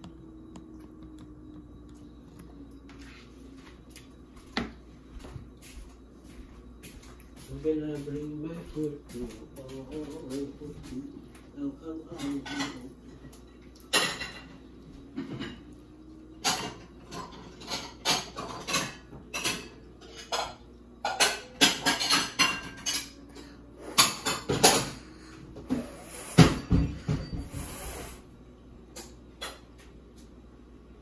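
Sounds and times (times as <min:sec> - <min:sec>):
dishes and cutlery clinking: 0:12.0 - 0:25.1, 0:26.4 - 0:27.6.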